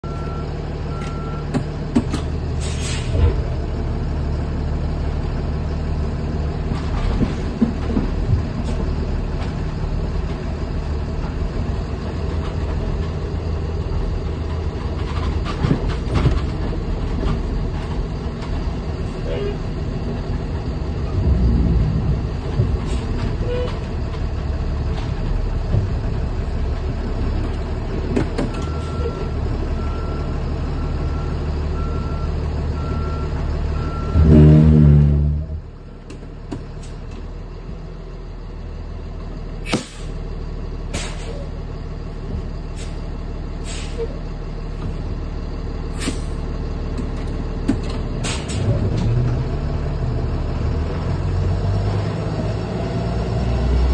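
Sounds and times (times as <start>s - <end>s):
bus engine running: 0.0s - 53.9s
air brake hisses: 2.6s - 3.2s, 39.6s - 40.2s, 40.9s - 41.5s, 42.8s - 43.0s, 43.6s - 44.2s, 45.9s - 46.4s, 48.2s - 48.7s
reversing beeper: 28.6s - 35.6s.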